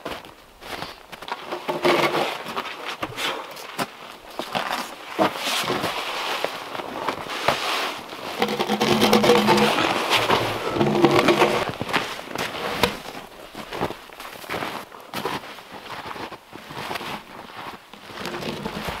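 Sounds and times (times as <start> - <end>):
boots crunching on frozen snow: 0.0 - 1.5, 2.4 - 19.0.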